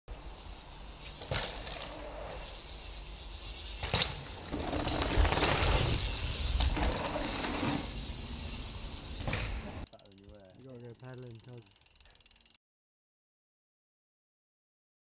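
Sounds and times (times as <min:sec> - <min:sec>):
bike tyres hissing on dirt: 0:00.1 - 0:09.9
bike freehub ticking: 0:02.4 - 0:12.6.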